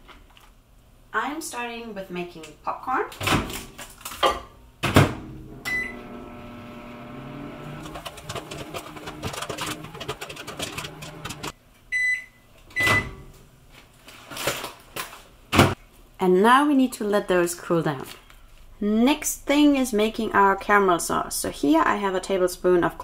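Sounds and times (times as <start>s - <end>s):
microwave oven humming: 5.3s - 11.5s
microwave beeps: 5.6s - 7.8s, 11.9s - 13.2s
popcorn popping: 7.6s - 11.5s.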